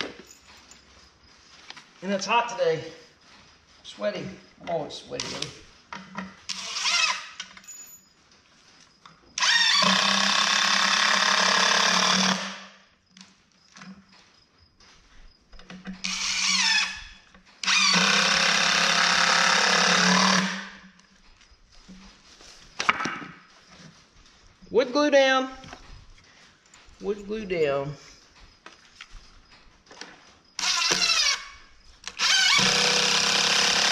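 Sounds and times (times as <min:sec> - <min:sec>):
screw grinding into wood: 0:06.4 - 0:07.4, 0:09.4 - 0:12.6, 0:15.9 - 0:20.8, 0:30.6 - 0:33.9
cordless drill driving screws: 0:06.5 - 0:07.4, 0:09.4 - 0:12.7, 0:16.0 - 0:20.8, 0:30.6 - 0:33.9.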